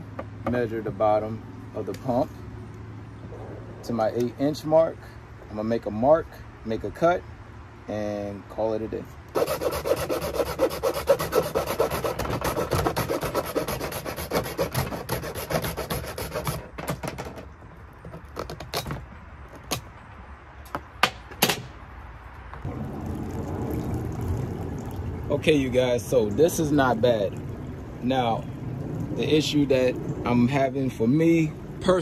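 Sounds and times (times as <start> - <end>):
hand saw cutting plastic pipe: 9.3 - 17.4
fountain pump bubbling water: 22.7 - 32.0.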